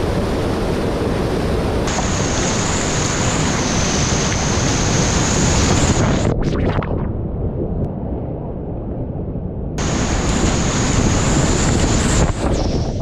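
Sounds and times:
waterfall roaring: 0.0s - 6.3s, 9.8s - 12.8s
high-pitched whine: 1.9s - 7.3s, 9.8s - 13.0s.

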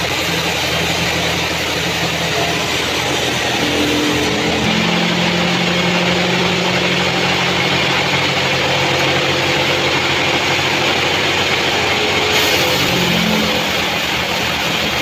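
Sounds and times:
band saw cutting log: 0.0s - 15.0s.

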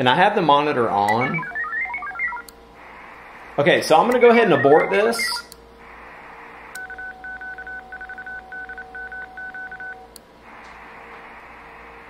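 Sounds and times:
morse code beeps: 1.1s - 2.5s, 4.2s - 5.4s, 6.8s - 10.0s
radio receiver hiss: 1.3s - 7.1s, 10.4s - 12.0s.

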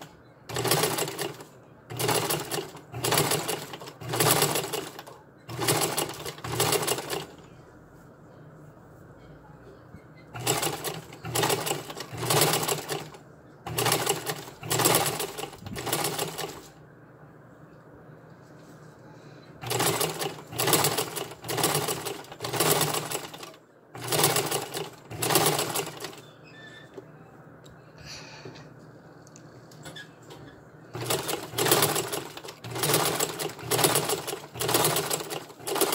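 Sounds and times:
sewing machine stitching: 0.5s - 7.4s, 10.4s - 16.7s, 19.6s - 26.3s, 30.9s - 35.9s.

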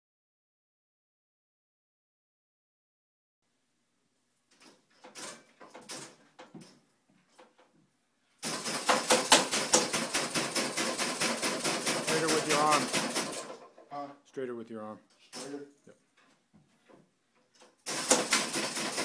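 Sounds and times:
faint knocks and rustles: 4.5s - 8.4s, 15.1s - 17.8s.

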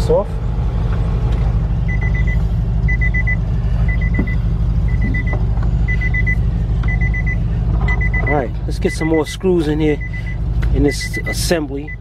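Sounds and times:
low rumble: 0.2s - 10.8s
car warning chime beeps: 1.9s - 12.0s.

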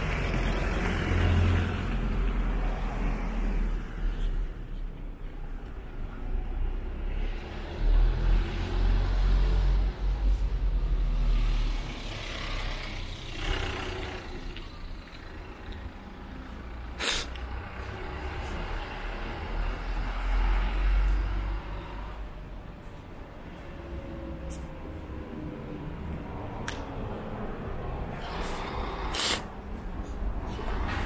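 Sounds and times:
vehicle passing: 0.0s - 4.8s, 5.4s - 31.0s
road traffic rumble: 0.0s - 31.0s
short sharp hiss: 17.0s - 17.4s, 29.0s - 29.5s.

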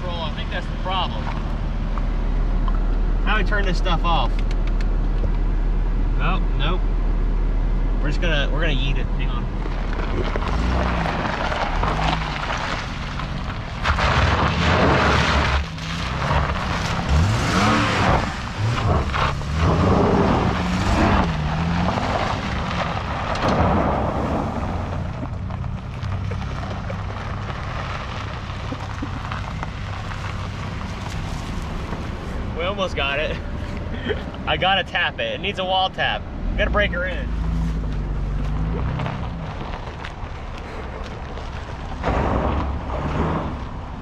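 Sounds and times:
car engine revving: 0.0s - 34.7s, 36.2s - 44.0s
tyres throwing gravel: 9.7s - 33.2s, 37.4s - 43.8s.

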